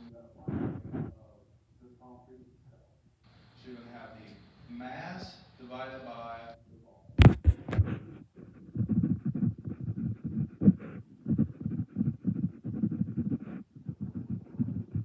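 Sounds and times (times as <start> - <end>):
muffled low thuds: 7.2 - 15.0.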